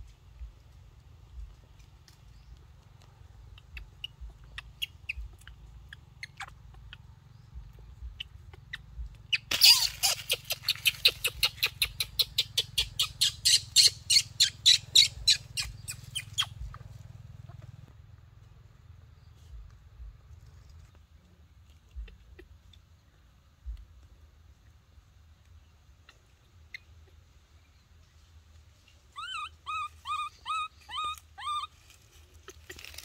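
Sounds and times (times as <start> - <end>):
animal sharp calls: 3.4 - 16.7, 29.1 - 31.8.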